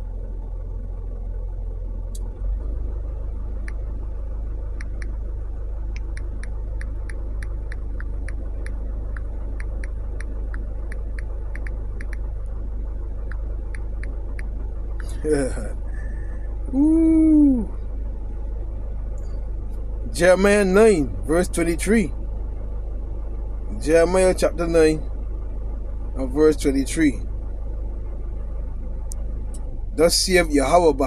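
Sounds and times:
low rumble inside car: 0:00.0 - 0:31.0.

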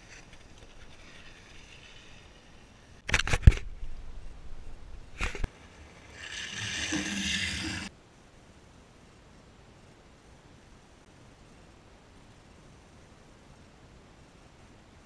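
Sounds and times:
longboard wheels rolling on concrete: 0:00.0 - 0:03.0, 0:05.1 - 0:07.9.

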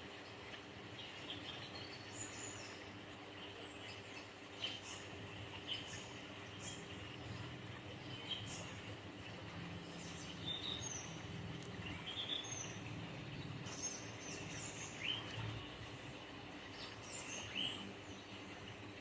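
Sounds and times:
faint low hum: 0:00.1 - 0:19.0
small birds chirping: 0:00.4 - 0:19.0.

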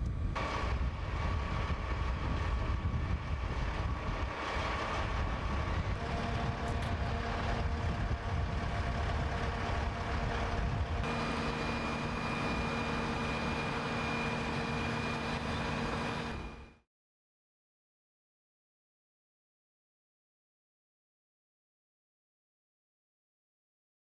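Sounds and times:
idling engines and machinery: 0:00.0 - 0:16.8
steady hum tones: 0:00.1 - 0:16.8.

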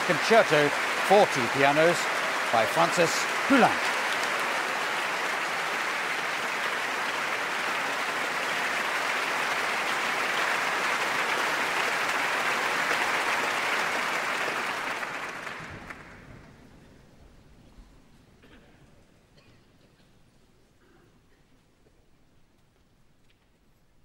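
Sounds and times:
audience applauding: 0:00.0 - 0:16.6.

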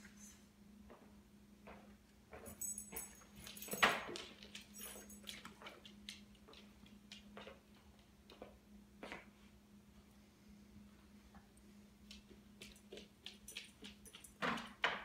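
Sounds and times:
dog claws clicking on floor: 0:01.7 - 0:09.2, 0:12.0 - 0:15.0.

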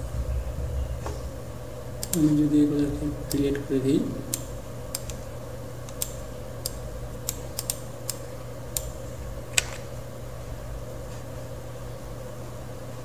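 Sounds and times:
steady background hum: 0:00.0 - 0:13.0
computer mouse clicking: 0:02.0 - 0:02.3, 0:04.3 - 0:09.0.

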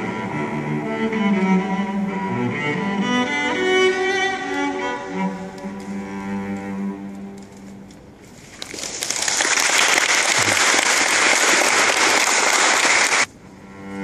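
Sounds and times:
audience applauding: 0:08.6 - 0:13.3.

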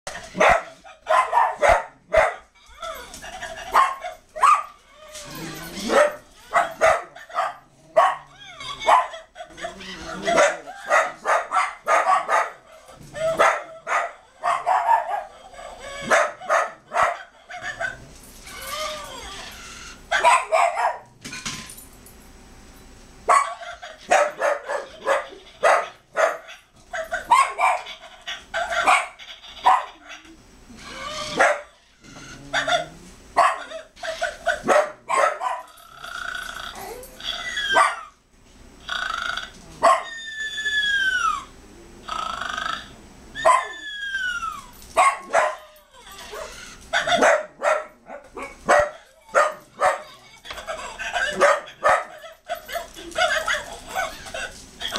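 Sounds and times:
dog barking and yipping: 0:00.1 - 0:19.3, 0:20.1 - 0:21.2, 0:23.3 - 0:35.7, 0:37.3 - 0:38.2, 0:39.8 - 0:40.3, 0:43.4 - 0:54.9
dog whining: 0:02.4 - 0:11.2, 0:12.6 - 0:20.7, 0:23.4 - 0:34.8, 0:35.6 - 0:38.2, 0:38.8 - 0:47.4, 0:48.1 - 0:54.9.

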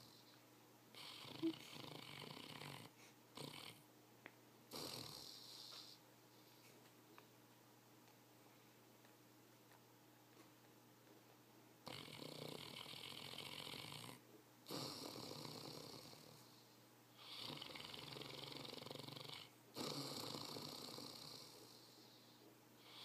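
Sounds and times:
dog snoring: 0:00.0 - 0:03.8, 0:04.7 - 0:06.0, 0:11.8 - 0:23.0.

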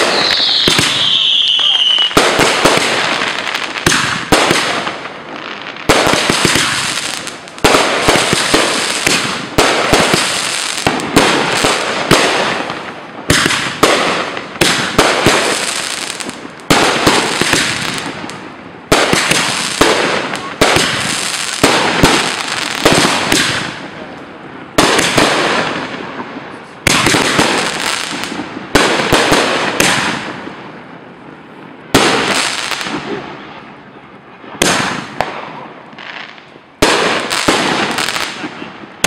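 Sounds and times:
fireworks bursting with bangs: 0:00.0 - 0:33.7, 0:34.3 - 0:39.0
fireworks crackling: 0:00.0 - 0:33.7, 0:34.4 - 0:39.0.

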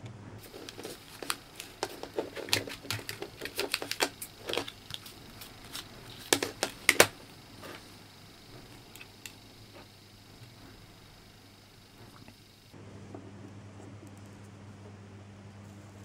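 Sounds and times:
plastic cartridge clicks and taps: 0:06.3 - 0:07.2.

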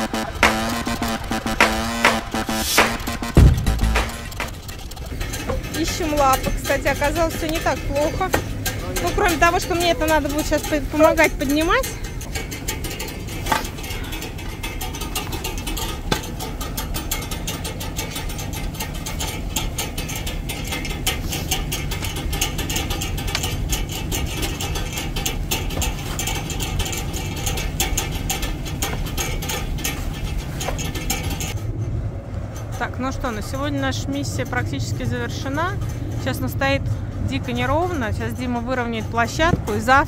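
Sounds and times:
jack ratcheting metallic clicks: 0:00.0 - 0:31.6.

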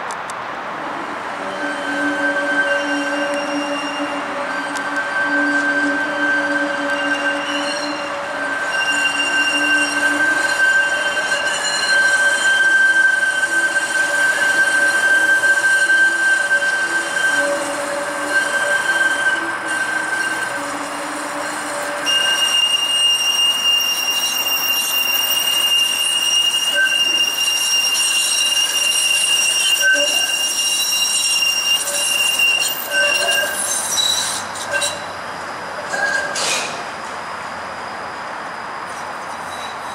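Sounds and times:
streetcar wheels squealing: 0:01.3 - 0:39.9.

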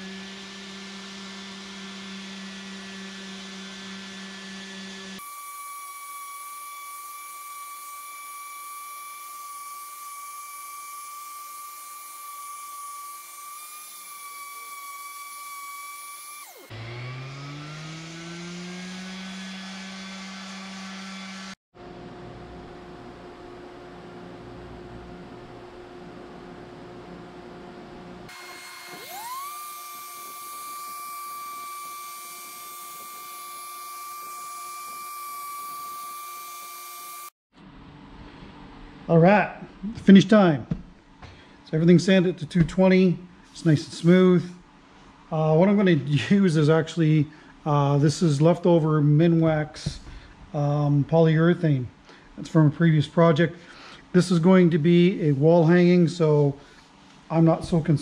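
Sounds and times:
orbital sander whining: 0:00.0 - 0:21.6, 0:28.3 - 0:37.3.

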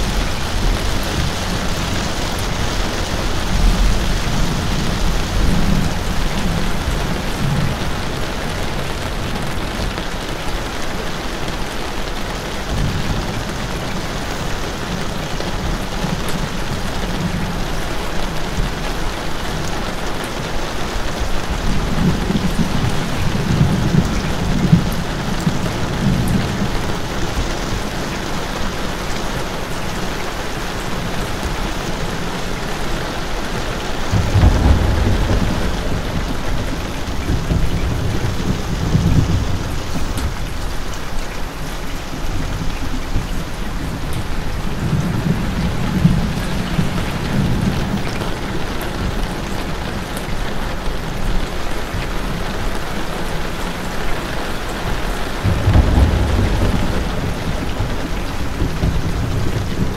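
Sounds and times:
low rolling thunder: 0:00.0 - 0:09.8, 0:21.0 - 0:29.0, 0:31.1 - 0:41.0, 0:42.5 - 0:51.2, 0:55.0 - 0:59.9
steady rain: 0:00.0 - 0:59.9.

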